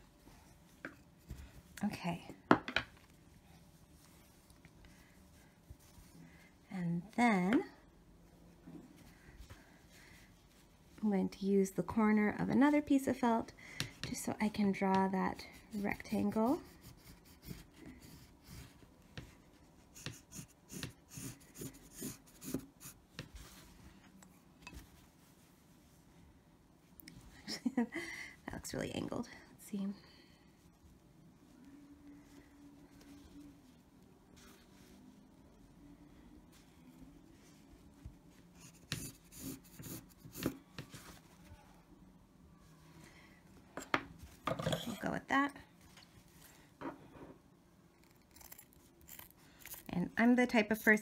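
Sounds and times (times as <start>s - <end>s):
pencil scratching on felt: 15.2s - 23.0s, 38.5s - 40.6s.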